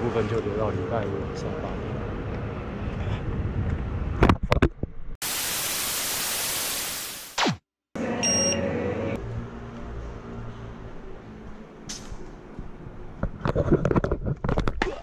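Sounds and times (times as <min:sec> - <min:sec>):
white-noise static burst: 0:05.2 - 0:07.6
short high beep: 0:08.2 - 0:08.6.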